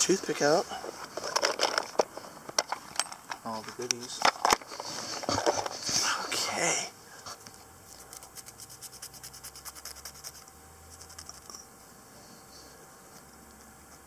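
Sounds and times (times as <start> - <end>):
toothpick scratching on coin: 7.9 - 11.6.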